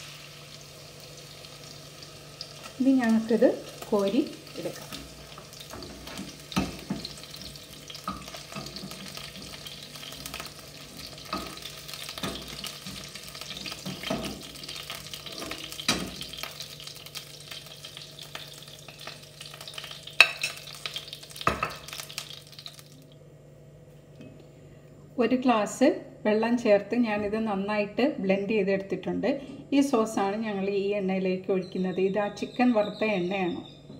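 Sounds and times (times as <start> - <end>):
chicken sizzling in hot oil: 0.0 - 23.0.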